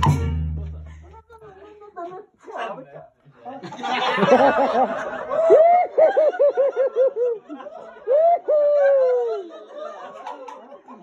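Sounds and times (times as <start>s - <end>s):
man laughing in falsetto: 5.3s - 7.4s, 8.1s - 9.6s.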